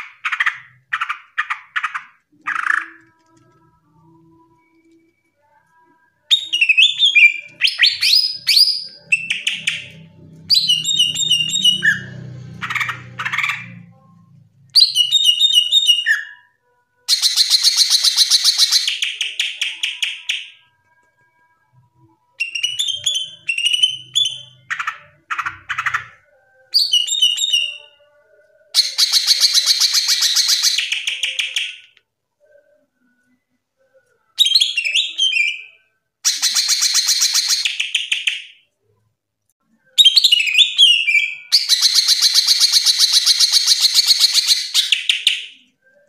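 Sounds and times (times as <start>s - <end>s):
bird singing whistled notes: 4.6s - 12.4s, 14.8s - 16.5s, 22.4s - 24.7s, 26.6s - 28.1s, 39.9s - 46.0s.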